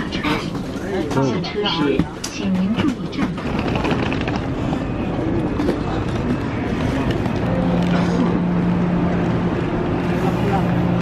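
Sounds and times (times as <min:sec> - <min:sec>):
suitcase wheels rolling on stone: 0:03.4 - 0:04.5.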